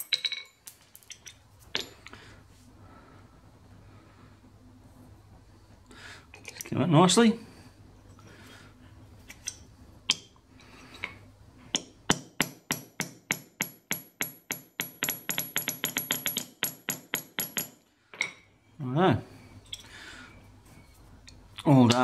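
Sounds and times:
hammer striking metal pin: 0:11.7 - 0:18.4.

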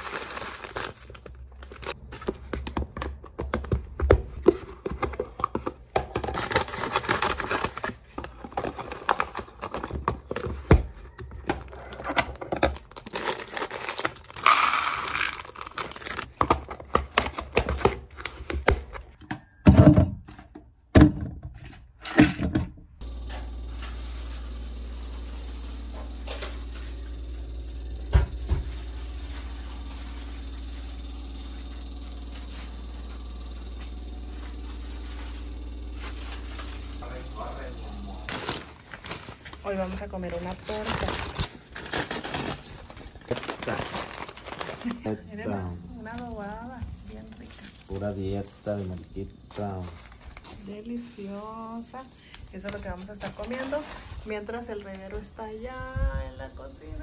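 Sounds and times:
plastic packets crinkling: 0:00.0 - 0:02.1, 0:05.2 - 0:10.5, 0:11.9 - 0:17.8, 0:36.6 - 0:54.3
food pouring into containers: 0:12.8 - 0:16.3
steady low hum: 0:23.0 - 0:57.0.

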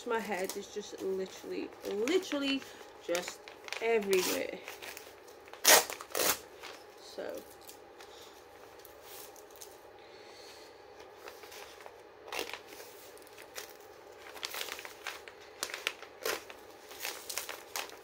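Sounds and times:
packaging crinkling: 0:01.3 - 0:07.9, 0:11.0 - 0:18.0
tape being torn: 0:05.5 - 0:06.4.

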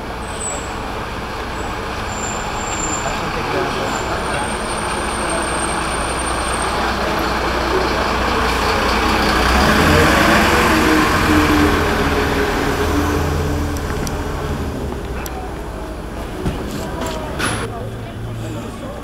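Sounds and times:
heavy vehicle engine hum: 0:00.0 - 0:19.0
street noise: 0:00.0 - 0:19.0.

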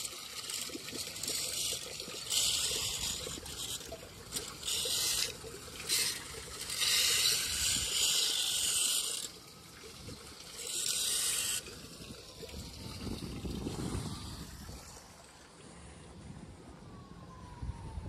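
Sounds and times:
water running into drain: 0:00.0 - 0:15.5.

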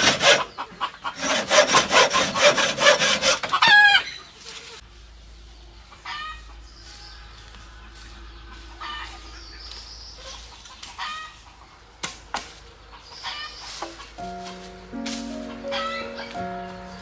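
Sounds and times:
chickens clucking: 0:00.0 - 0:17.0
music: 0:14.2 - 0:17.0.

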